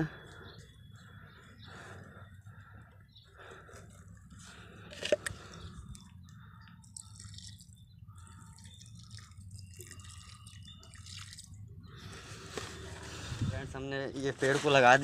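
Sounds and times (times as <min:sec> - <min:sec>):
low steady hum: 0:00.0 - 0:14.1
water dripping onto soil: 0:05.2 - 0:11.7.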